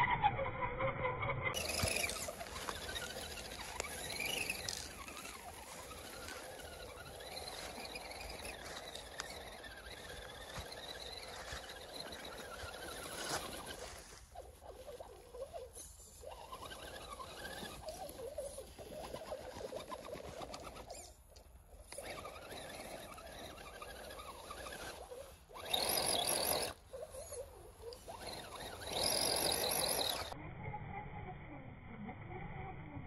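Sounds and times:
rc car motor whining: 0:00.0 - 0:33.0.

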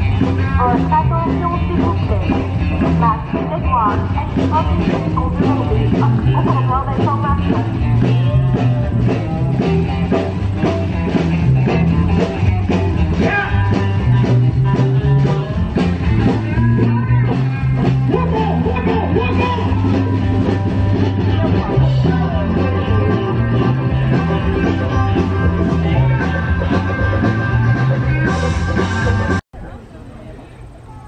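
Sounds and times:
rock band playing: 0:00.0 - 0:29.4.

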